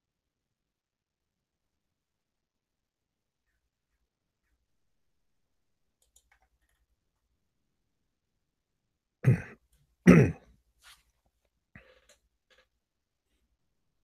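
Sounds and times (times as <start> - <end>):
man clearing his throat: 9.2 - 10.5.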